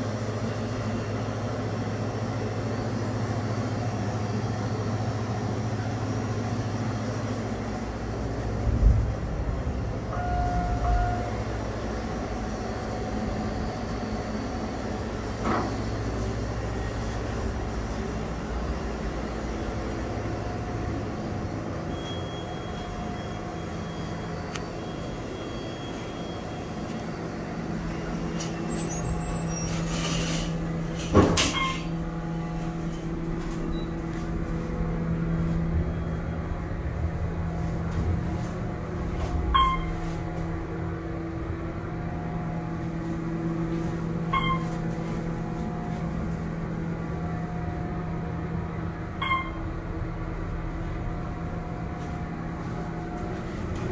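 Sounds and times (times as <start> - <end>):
hydraulic power unit hum: 0.0 - 53.9
elevator car thump: 15.3 - 15.8, 30.8 - 32.0
elevator clicks: 44.3 - 44.9.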